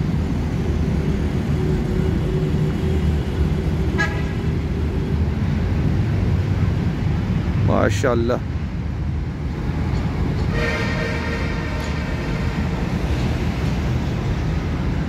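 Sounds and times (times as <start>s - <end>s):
road traffic rumble: 0.0s - 15.0s
vehicle horn toot: 10.5s - 12.5s.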